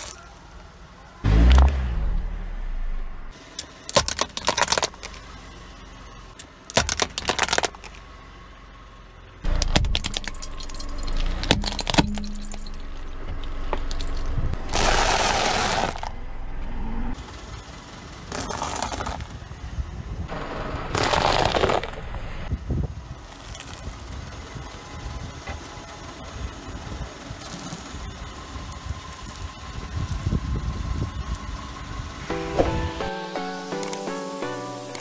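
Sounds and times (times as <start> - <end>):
low rumble: 1.2 - 3.4, 9.4 - 17.3
tyre crushing objects: 6.7 - 8.0, 14.6 - 16.1.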